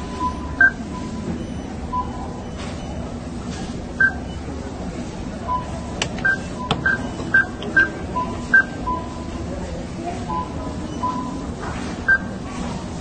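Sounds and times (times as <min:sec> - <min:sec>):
keypad beeps: 0:04.0 - 0:04.5, 0:05.4 - 0:09.2.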